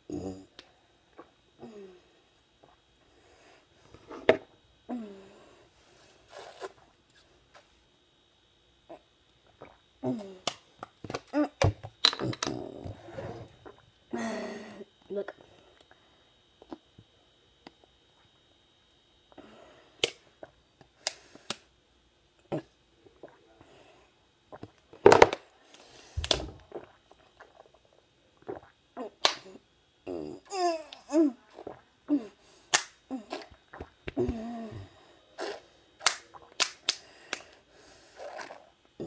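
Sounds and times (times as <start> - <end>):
person gulping water: 11.1 - 13.9, 22.5 - 23.4, 26.2 - 29.4, 31.5 - 31.8, 33.2 - 34.8
throaty vocal sounds: 12.2 - 13.5.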